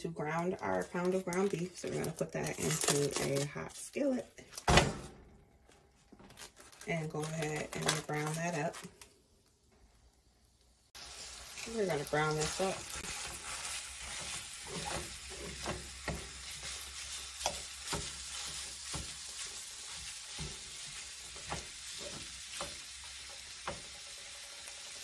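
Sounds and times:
meat sizzling in a skillet: 10.7s - 25.0s
fork scraping a pan: 13.0s - 22.7s.

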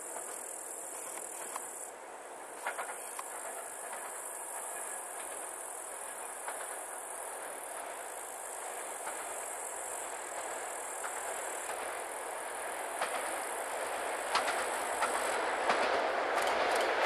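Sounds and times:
insects chirring: 0.0s - 16.6s
distant train running: 0.0s - 17.0s.

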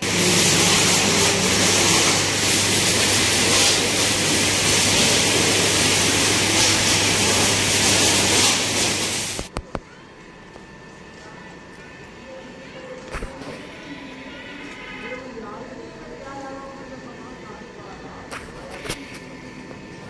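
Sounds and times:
pressure washer jet hissing: 0.0s - 9.5s.

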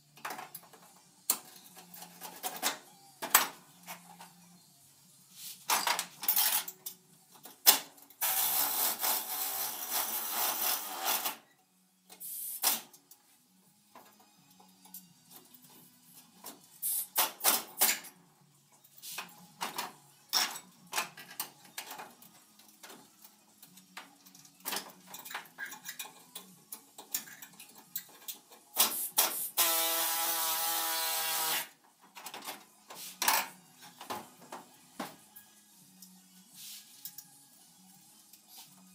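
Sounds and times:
pneumatic tool whining: 28.8s - 31.7s.

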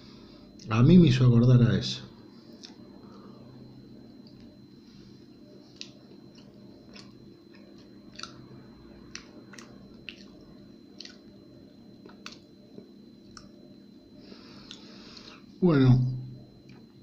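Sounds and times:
chewing crunchy biscuit: 5.7s - 13.6s.

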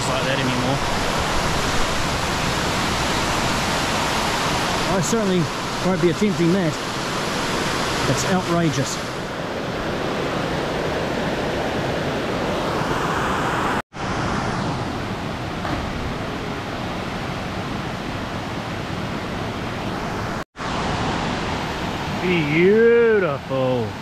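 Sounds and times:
creek cascading over rocks: 0.0s - 9.4s.

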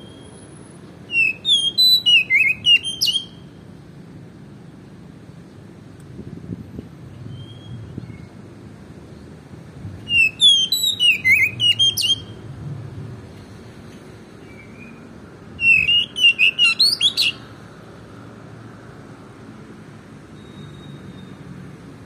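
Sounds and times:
bird singing: 1.1s - 3.6s, 10.1s - 12.4s, 14.4s - 17.5s.

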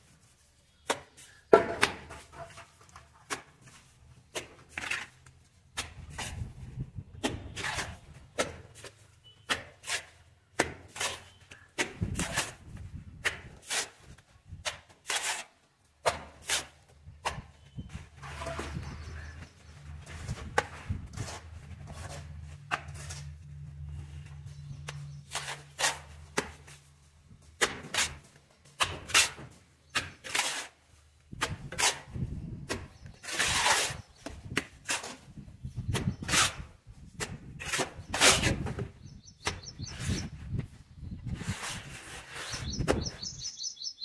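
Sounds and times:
mortar slapping onto brick wall: 0.8s - 6.5s, 7.1s - 17.6s, 25.3s - 26.8s, 27.6s - 40.2s
trowel scraping mortar in metal pan: 7.2s - 17.6s, 18.2s - 23.5s, 24.9s - 26.9s, 27.6s - 35.3s, 35.9s - 40.3s, 41.3s - 43.2s.

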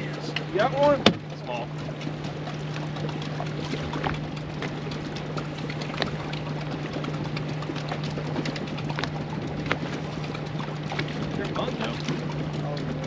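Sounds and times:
steady low hum: 0.0s - 13.0s
water lapping against boat hull: 0.0s - 13.0s.

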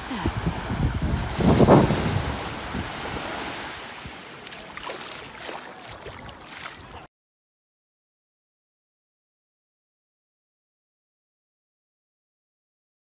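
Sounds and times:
wind buffeting microphone: 0.0s - 4.2s
small waves washing on beach: 0.0s - 7.1s.

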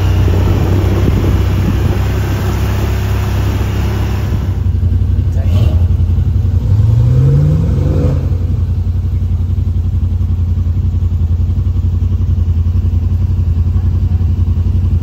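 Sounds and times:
vehicle engine revving: 0.0s - 10.5s.

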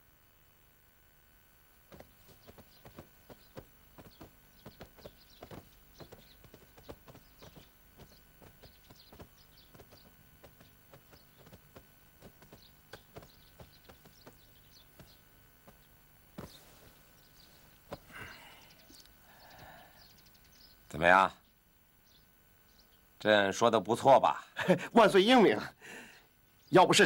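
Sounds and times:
footsteps on stone: 1.9s - 18.1s
bird chirps: 1.9s - 23.1s.

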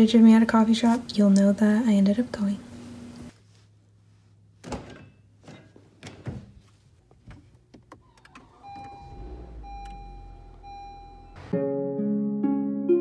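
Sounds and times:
low hum: 8.5s - 11.5s
dashboard chime: 8.7s - 11.5s.

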